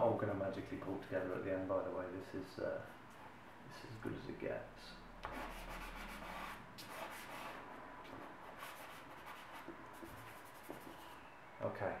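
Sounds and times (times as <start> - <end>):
chalk scratching on paper: 5.2 - 11.2.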